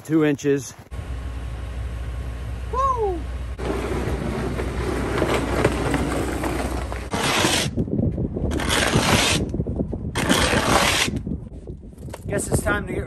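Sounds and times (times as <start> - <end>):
steady low hum: 0.7 - 6.2
snow shovel scraping: 3.6 - 7.8, 8.5 - 9.4, 10.2 - 11.1.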